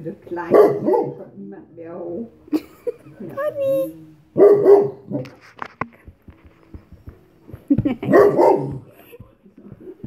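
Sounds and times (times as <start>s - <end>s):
dog barking: 0.4s - 1.3s, 4.4s - 5.3s, 8.1s - 8.9s.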